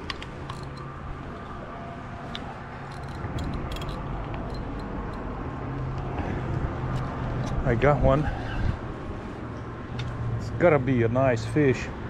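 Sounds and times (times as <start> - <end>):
fishing tackle clicks: 0.0 - 0.9, 2.3 - 5.3
low hum of traffic: 0.0 - 12.0.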